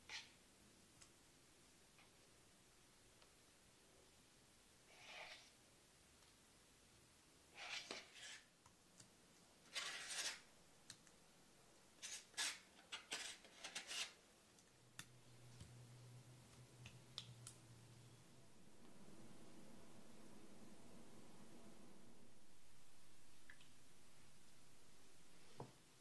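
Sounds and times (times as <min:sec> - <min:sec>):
faint low hum: 0:12.8 - 0:26.0.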